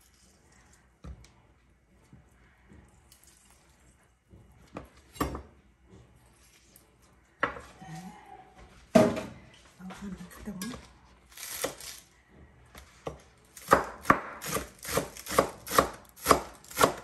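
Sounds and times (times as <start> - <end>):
knife chopping on cutting board: 13.0 - 17.0.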